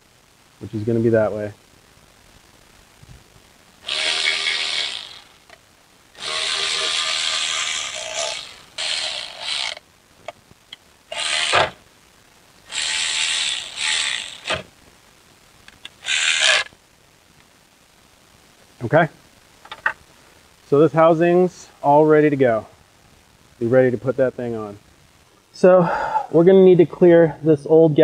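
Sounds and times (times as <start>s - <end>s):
cordless ratchet bursts: 3.8s - 5.6s, 6.2s - 9.8s, 11.1s - 11.8s, 12.7s - 14.7s, 15.9s - 16.7s.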